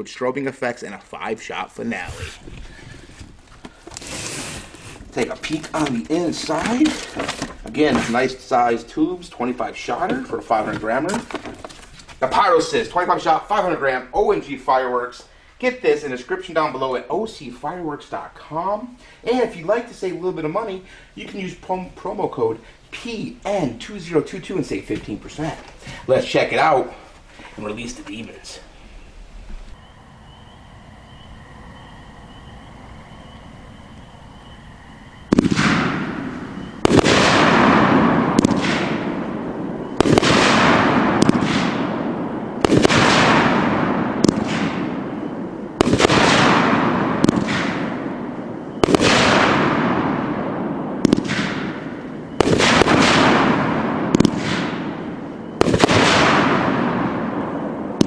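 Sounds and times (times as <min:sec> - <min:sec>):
fireworks shots exploding: 0:04.0 - 0:12.6, 0:35.3 - 0:58.0.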